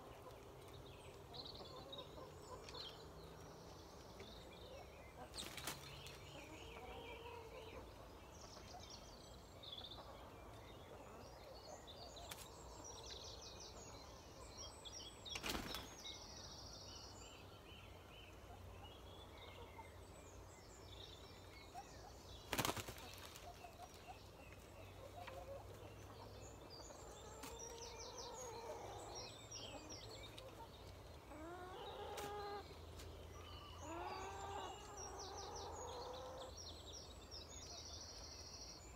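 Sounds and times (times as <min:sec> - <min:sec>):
songbirds twittering: 0:00.0 - 0:38.9
wings flapping: 0:22.5 - 0:23.4.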